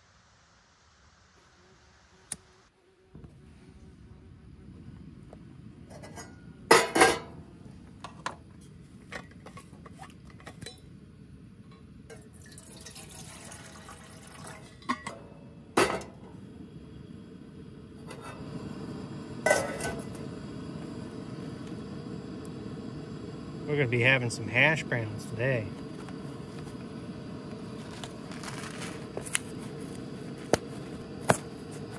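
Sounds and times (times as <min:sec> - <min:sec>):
metal pot clinking on a grate: 0:06.0 - 0:07.4, 0:09.2 - 0:10.9, 0:11.7 - 0:16.2
water pouring into a pot: 0:12.1 - 0:15.1.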